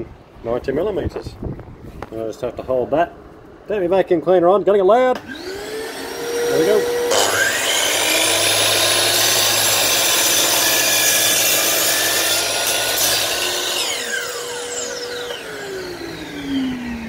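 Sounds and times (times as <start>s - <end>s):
mitre saw cutting wood: 5.2s - 17.0s.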